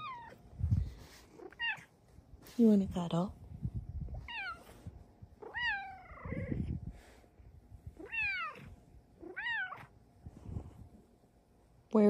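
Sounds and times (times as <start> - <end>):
cat meowing: 4.2 - 4.6, 5.4 - 6.6, 8.0 - 9.9.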